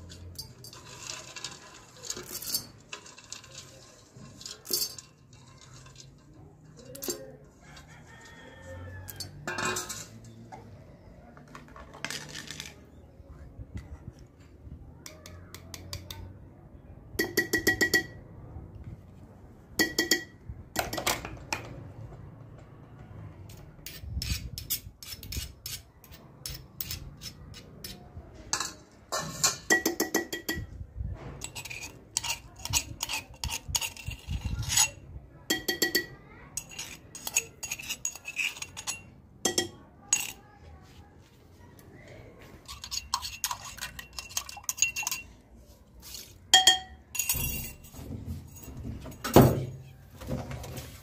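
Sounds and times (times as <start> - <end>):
metal spoons clinking on metal: 0.0 - 7.4, 9.0 - 10.4, 17.2 - 18.2, 19.8 - 21.0, 23.9 - 30.7, 31.4 - 40.4, 42.7 - 45.4, 46.0 - 49.4.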